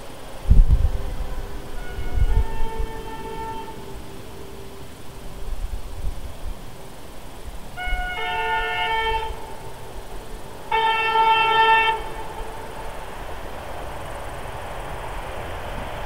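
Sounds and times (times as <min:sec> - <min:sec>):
low rumble of train: 0:00.0 - 0:16.0
locomotive horn blasts: 0:00.5 - 0:06.2, 0:07.6 - 0:13.1.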